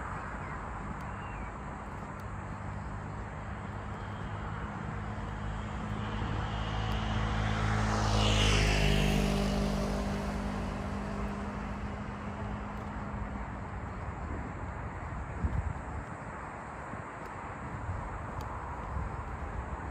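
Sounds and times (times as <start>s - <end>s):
vehicle passing by: 3.8s - 13.8s.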